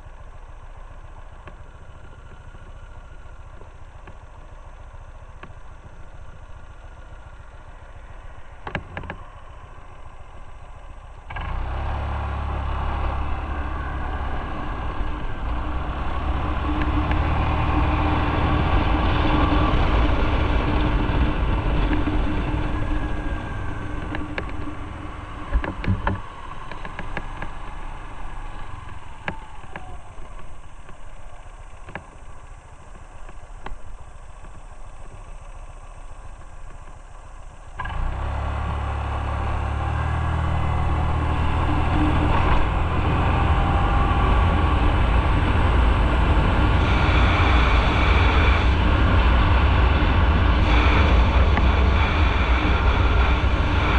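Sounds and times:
motorcycle engine: 0.0s - 53.9s
wind noise: 12.8s - 30.9s, 40.5s - 53.9s.

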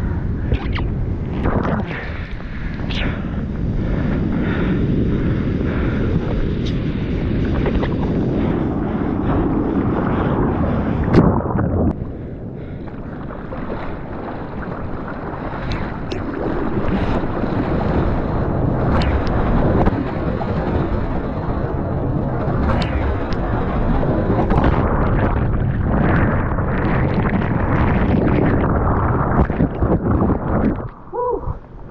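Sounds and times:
wind on microphone: 0.0s - 31.9s
whitewater rushing and splashing: 12.6s - 30.8s.

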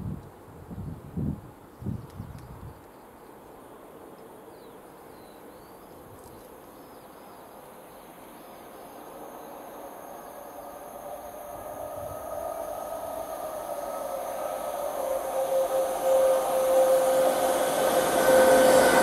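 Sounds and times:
distant freight train rumble: 6.6s - 19.0s
insect buzz: 7.9s - 19.0s.

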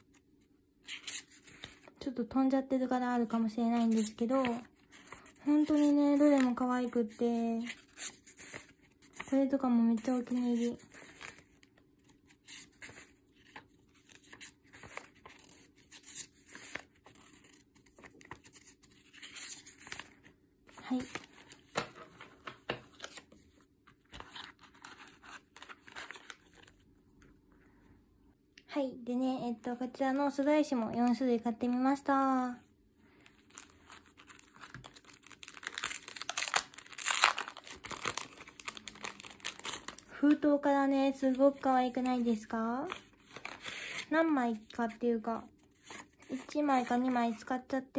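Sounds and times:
plastic packaging crinkling: 33.2s - 40.4s.

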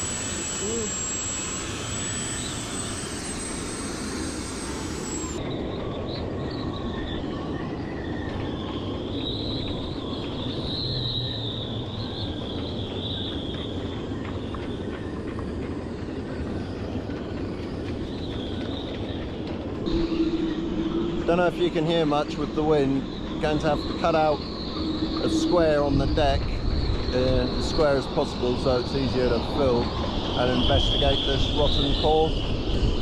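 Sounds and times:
rotary tool drilling whine: 0.0s - 5.4s, 19.8s - 33.0s
faint wavering whistle: 0.0s - 15.2s, 15.9s - 33.0s
wind buffeting microphone: 5.4s - 33.0s.

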